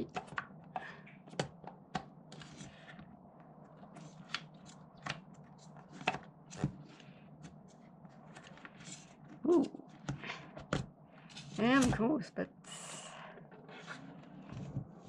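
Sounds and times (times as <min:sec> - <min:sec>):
wooden puzzle box clicks and scrapes: 0:01.3 - 0:03.1, 0:03.8 - 0:12.0.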